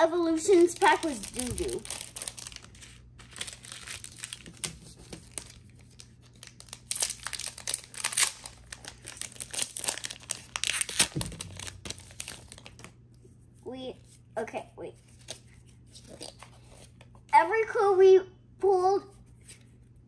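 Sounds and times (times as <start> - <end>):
foil wrapper tearing and crinkling: 0.3 - 13.0.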